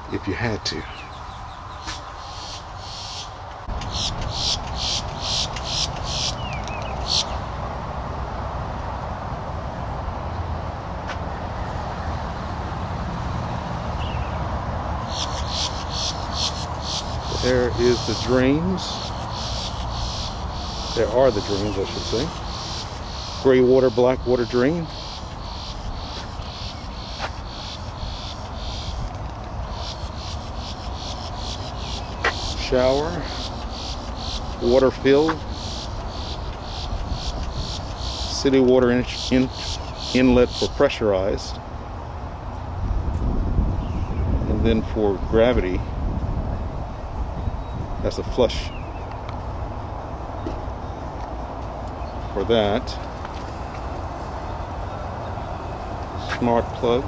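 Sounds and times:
insects chirping: 0:00.8 - 0:07.5, 0:15.0 - 0:41.2.

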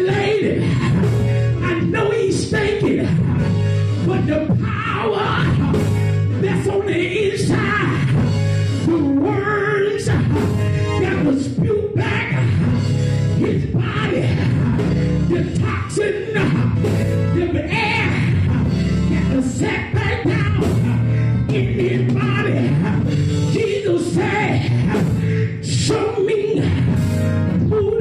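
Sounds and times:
man singing gospel through pa: 0:00.0 - 0:28.0
live band with bass and drums: 0:00.7 - 0:02.0, 0:02.6 - 0:06.8, 0:10.1 - 0:15.7, 0:16.3 - 0:25.4.

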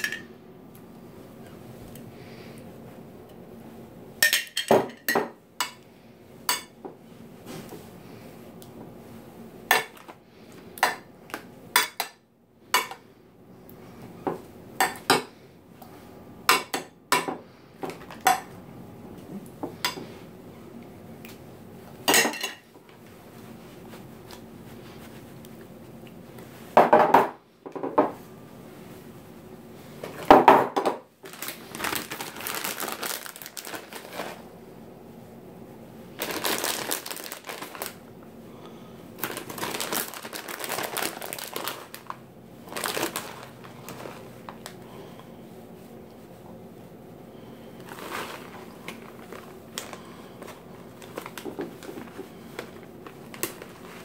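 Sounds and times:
plastic bag crinkling: 0:31.2 - 0:34.4, 0:36.1 - 0:38.1, 0:39.2 - 0:44.8, 0:47.8 - 0:54.0
handling noises: 0:47.7 - 0:54.0.

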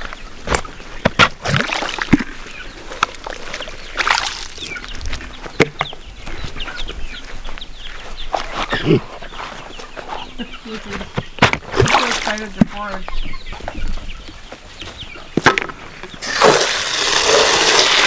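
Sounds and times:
plastic waterers clattering: 0:00.0 - 0:06.1, 0:10.7 - 0:13.0, 0:15.4 - 0:18.0
chickens calling: 0:00.0 - 0:18.0.

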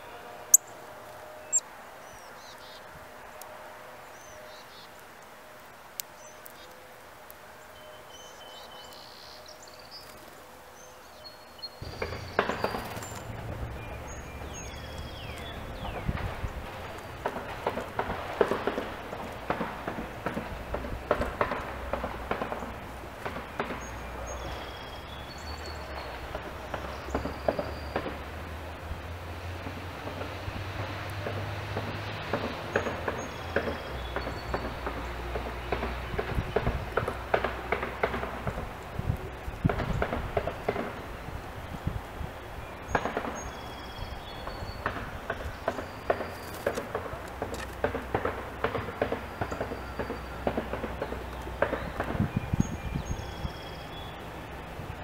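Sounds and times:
woodpecker pecking on wood: 0:45.3 - 0:52.1.

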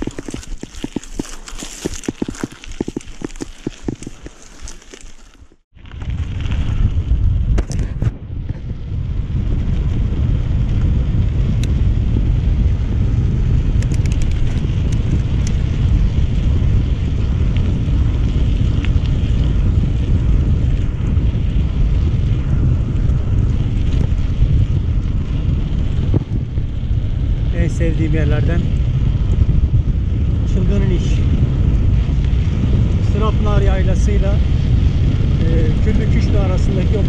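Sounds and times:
bike clicks and rattles: 0:00.0 - 0:37.0
wind buffeting microphone: 0:00.0 - 0:37.0.

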